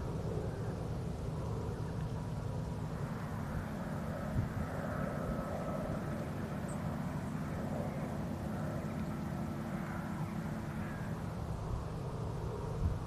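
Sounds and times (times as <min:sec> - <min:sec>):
faint steady hum: 0:00.0 - 0:13.0
low outdoor rumble: 0:00.0 - 0:13.0.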